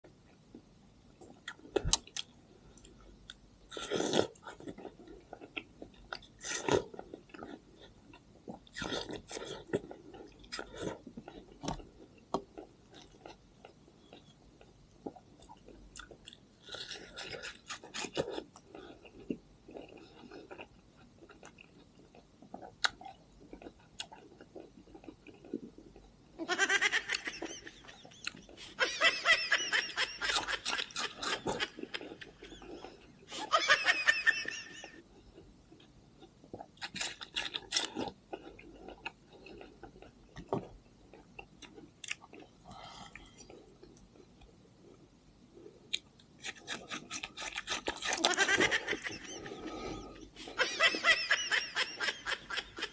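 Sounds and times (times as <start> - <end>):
chewing watermelon: 1.4 - 26.1, 35.2 - 44.5, 45.9 - 50.4.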